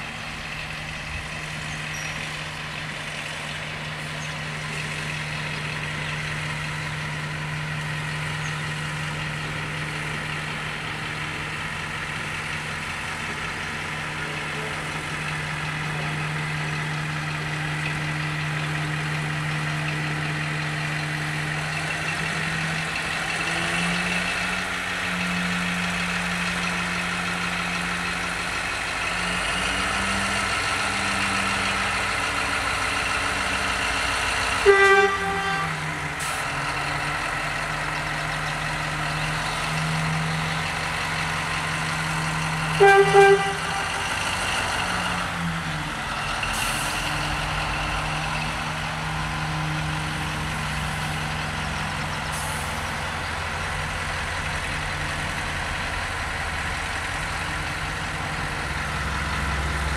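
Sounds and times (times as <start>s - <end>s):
locomotive diesel engine running: 0.0s - 59.9s
locomotive horn toots: 34.5s - 36.4s, 42.6s - 44.4s.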